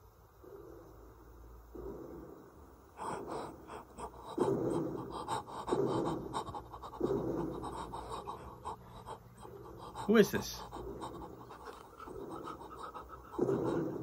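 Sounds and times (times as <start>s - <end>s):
man panting heavily: 3.0s - 14.0s.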